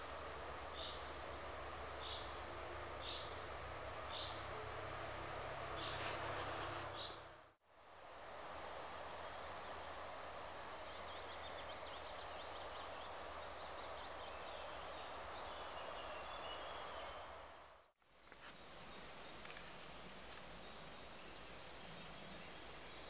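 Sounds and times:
background hiss: 0.0 - 23.0
faint high bird chirps: 8.7 - 17.4, 18.4 - 23.0.

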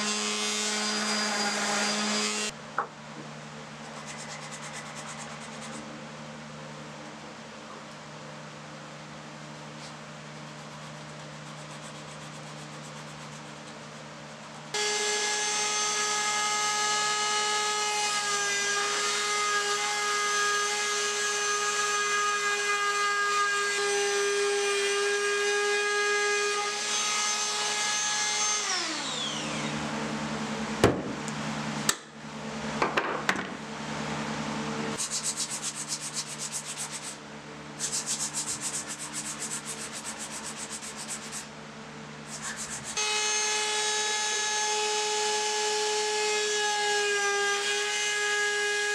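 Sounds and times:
trim router cutting wood: 0.0 - 2.5, 24.8 - 29.8
router whine spinning down: 28.6 - 30.1.

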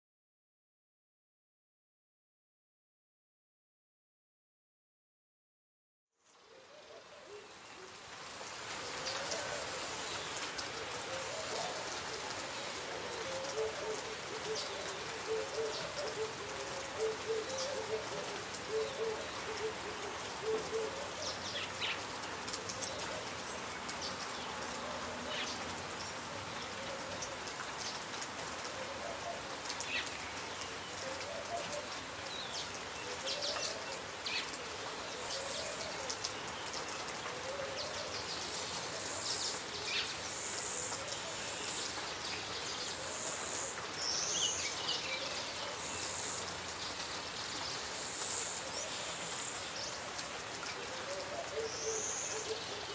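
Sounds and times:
rain falling on leaves: 6.2 - 52.9
water drips: 7.4 - 52.9
bird calling: 8.9 - 22.1.

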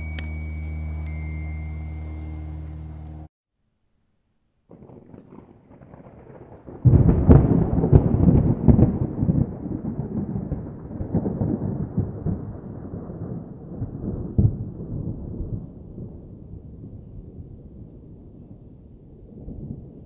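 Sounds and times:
thunder cracks and rumble: 4.7 - 20.0.

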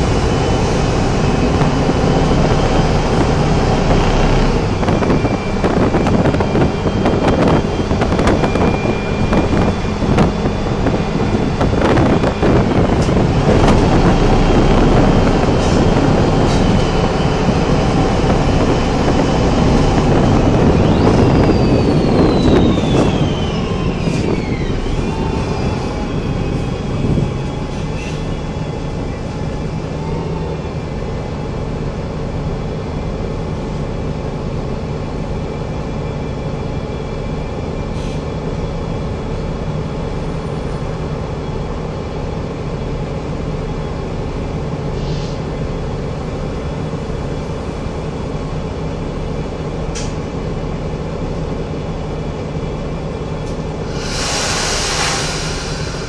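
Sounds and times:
bus body rattling and knocking: 0.0 - 23.2
bus engine and road rumble: 0.0 - 56.0.

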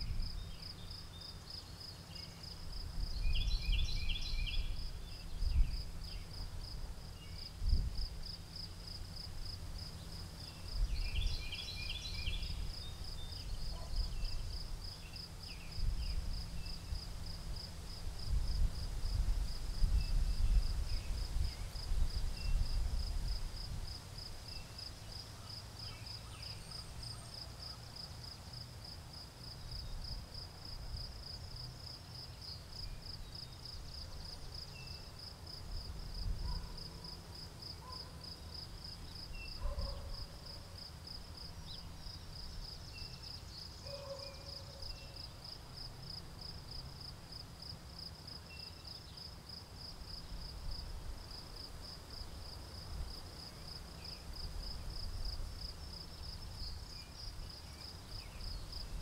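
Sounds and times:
wind rumble on microphone: 0.0 - 0.6, 2.7 - 8.4, 10.6 - 14.9, 15.6 - 24.2, 35.7 - 36.7
crickets chirping: 0.0 - 59.0.

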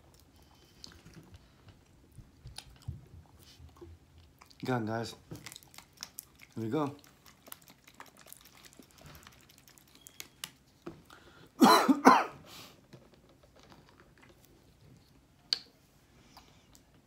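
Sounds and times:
man clearing throat: 11.6 - 12.4.

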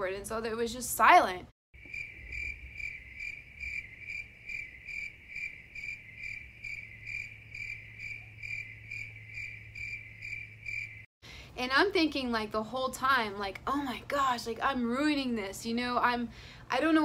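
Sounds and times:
cricket chirping: 1.8 - 11.1.

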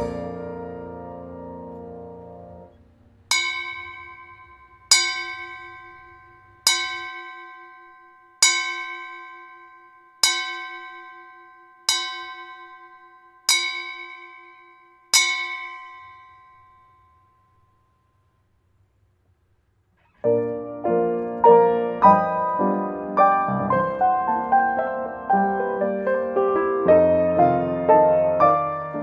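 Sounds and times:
bell tolling: 0.0 - 18.3.

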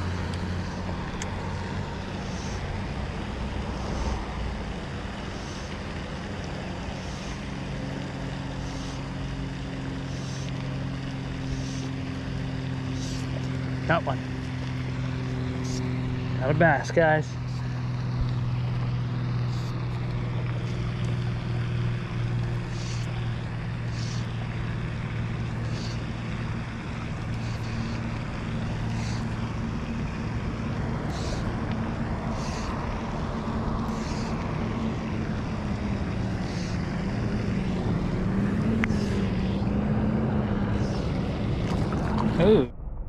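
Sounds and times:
low motor hum: 0.0 - 43.0
fishing line swishing: 8.3 - 13.6, 19.4 - 21.7, 22.4 - 23.2, 23.8 - 24.6, 27.1 - 30.2, 31.0 - 34.5, 36.4 - 36.8, 38.4 - 39.8.

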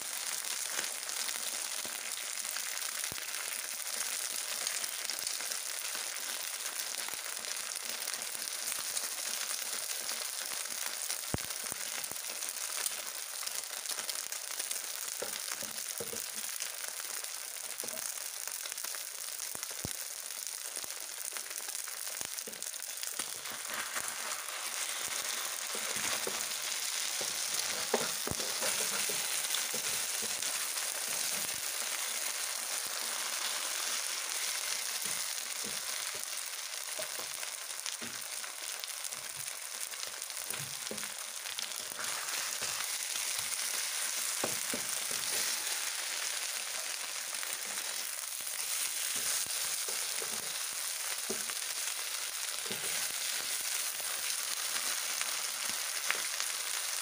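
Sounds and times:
batter frying in pan: 0.0 - 57.0
wooden spatula scraping pan: 23.4 - 31.5, 41.9 - 46.0.

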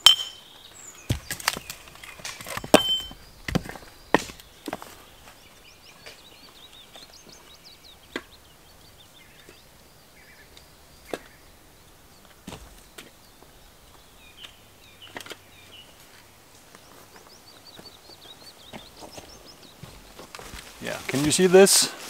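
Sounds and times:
small birds chirping: 0.0 - 22.0
firewood pieces knocking together: 1.1 - 5.0.

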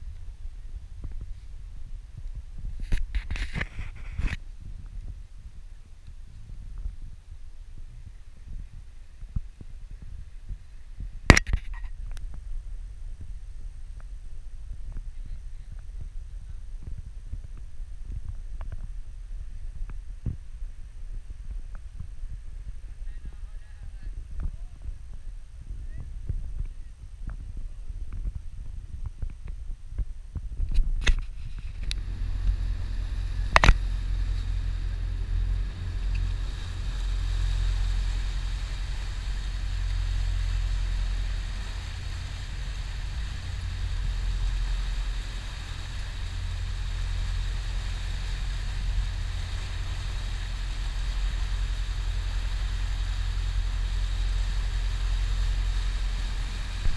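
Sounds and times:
wind buffeting microphone: 0.0 - 56.9
boat engine running: 31.2 - 56.9
rushing water of wake: 31.6 - 56.9.

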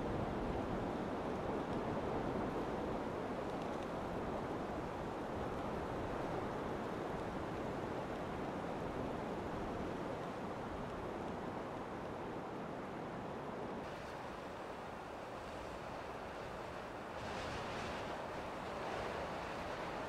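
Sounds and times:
steady rushing noise: 13.8 - 20.0.

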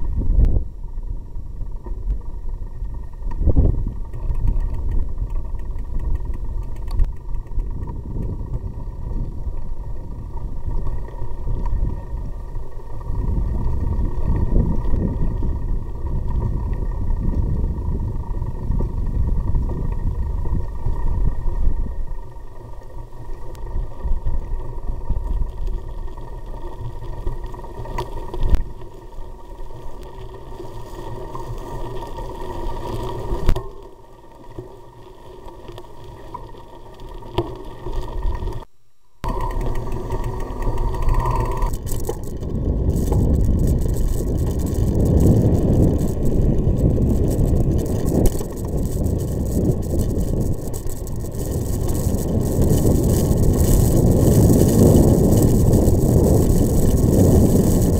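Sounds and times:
wind noise: 0.0 - 22.4, 39.2 - 57.9
vehicle rumbling over gravel: 36.3 - 57.9.

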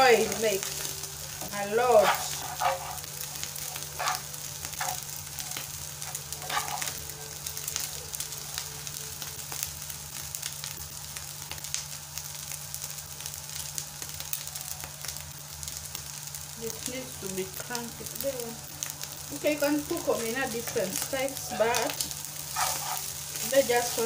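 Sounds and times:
fish sizzling in hot oil: 0.0 - 24.0
spoon stirring and scraping: 1.4 - 5.1, 6.0 - 7.0, 22.4 - 23.9.

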